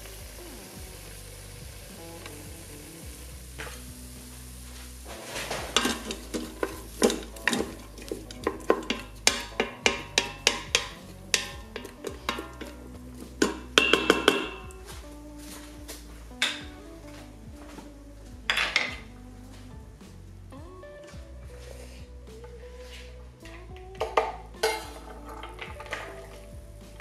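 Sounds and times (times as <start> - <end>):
low sizzle: 0.0 - 27.0
wooden spatula scraping metal pot: 4.8 - 14.8, 24.6 - 27.0.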